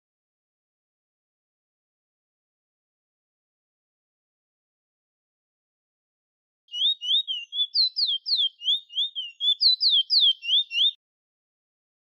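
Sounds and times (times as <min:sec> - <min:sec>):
finch singing whistled notes: 0:06.7 - 0:11.0.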